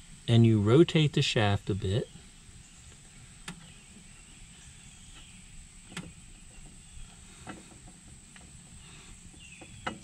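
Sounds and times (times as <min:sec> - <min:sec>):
faint light clicks of a shaft: 0:05.1 - 0:08.5.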